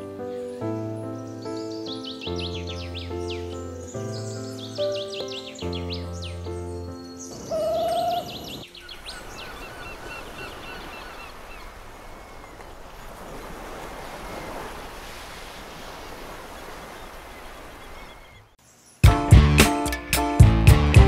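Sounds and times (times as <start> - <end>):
small bird chirping: 1.2 - 13.5
steady rushing wind: 7.3 - 18.5.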